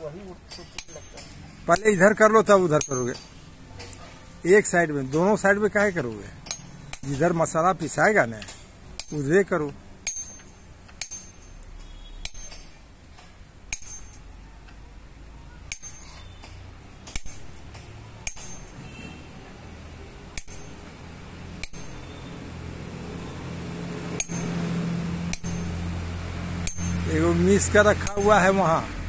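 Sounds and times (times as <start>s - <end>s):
hammer tapping chisel on stone: 28.0s - 28.5s.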